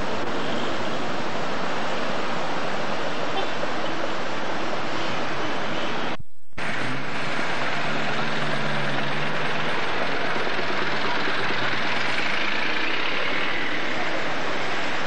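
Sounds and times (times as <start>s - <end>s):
street traffic: 0.0s - 15.0s
vehicle engine humming: 6.6s - 15.0s.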